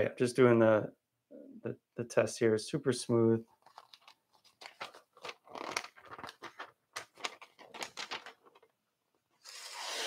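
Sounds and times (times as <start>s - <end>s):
paper rustling: 3.5s - 8.8s.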